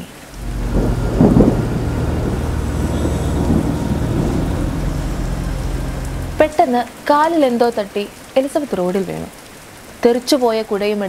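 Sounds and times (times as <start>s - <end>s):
heavy rain: 0.0s - 10.2s
low thunder rumble: 0.3s - 6.8s.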